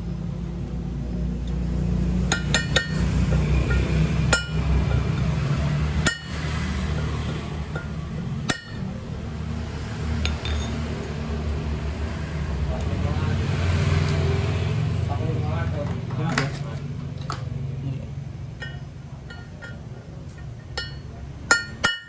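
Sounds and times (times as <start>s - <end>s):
steady low hum: 0.0s - 13.4s
metal pipe tapping clinks: 2.3s - 5.2s, 7.7s - 8.9s, 10.2s - 10.8s, 18.6s - 22.0s.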